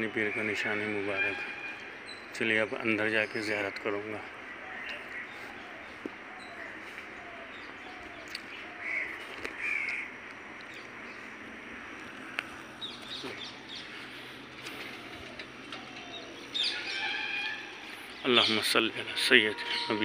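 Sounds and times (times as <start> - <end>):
crows cawing: 0.0 - 2.0, 3.5 - 10.2, 13.4 - 20.0
small birds chirping: 0.0 - 20.0
steady background hiss: 0.0 - 20.0.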